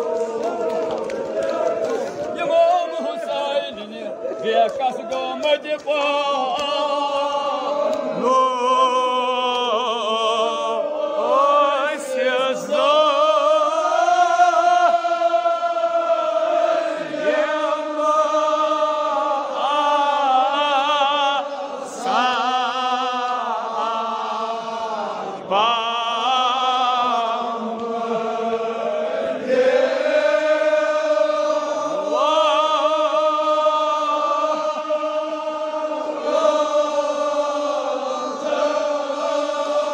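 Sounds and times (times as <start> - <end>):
men chanting elegy: 0.2 - 14.4.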